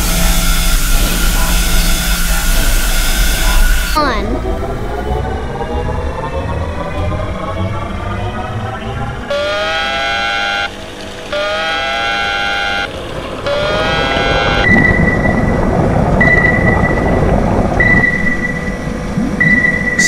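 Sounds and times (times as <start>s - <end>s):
submarine dive alarm: 0.0s - 4.0s, 8.7s - 20.0s
high sonar beeps: 0.0s - 5.2s, 9.1s - 20.0s
churning water: 0.0s - 20.0s.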